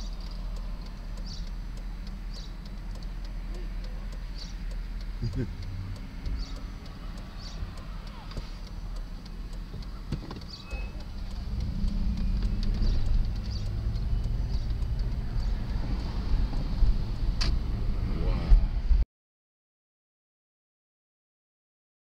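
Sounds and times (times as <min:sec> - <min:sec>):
car engine and tyre rumble: 0:00.0 - 0:19.0
sharp click: 0:17.4 - 0:17.6.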